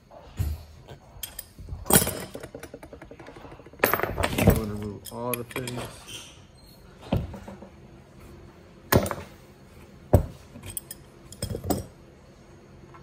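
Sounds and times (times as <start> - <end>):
wrench clanking on metal fittings: 1.2 - 6.3, 10.6 - 11.9.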